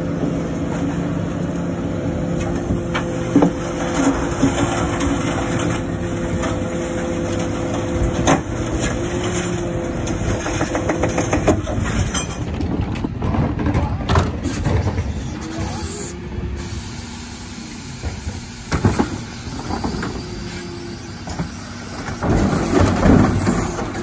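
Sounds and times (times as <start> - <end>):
hydraulic compactor hum: 0.0 - 24.0
clunks: 7.2 - 16.1.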